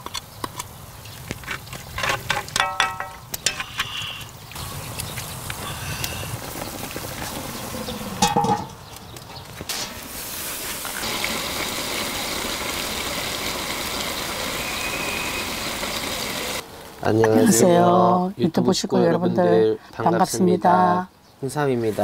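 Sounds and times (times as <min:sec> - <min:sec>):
metallic clank: 0:02.0 - 0:04.0
sauce bubbling and hissing: 0:10.0 - 0:17.0.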